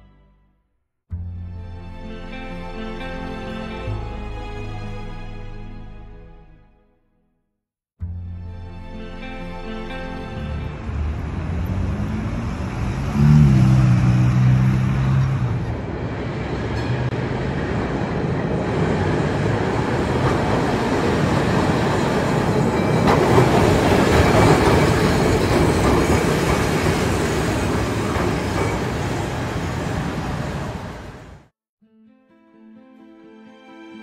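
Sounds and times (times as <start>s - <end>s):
tram rolling on rails: 10.6s - 31.5s.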